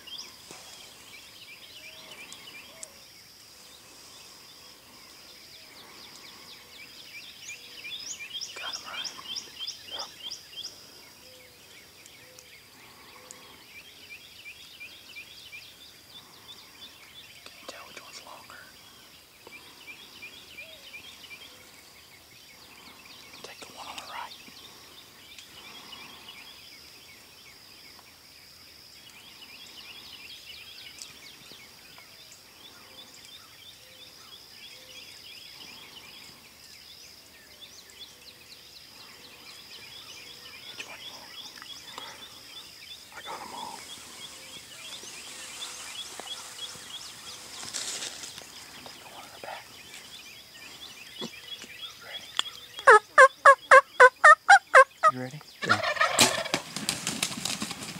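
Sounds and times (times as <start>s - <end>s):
turkey calls: 52.4s - 57.9s.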